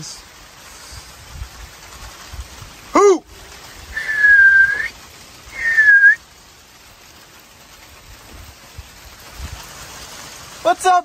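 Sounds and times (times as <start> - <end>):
person whistling to call dog: 4.0 - 4.9, 5.5 - 6.2.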